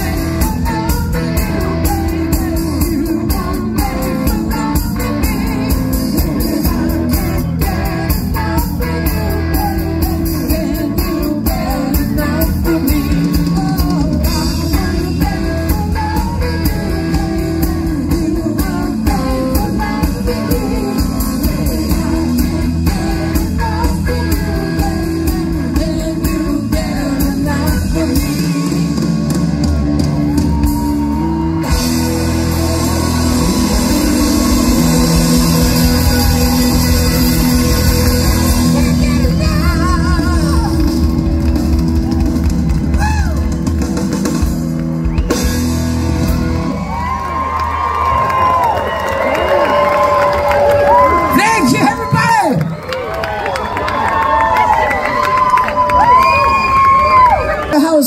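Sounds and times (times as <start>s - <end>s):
person singing: 0.0s - 29.4s, 30.4s - 41.3s
drum kit beat: 0.0s - 46.8s
electric guitar: 0.0s - 58.0s.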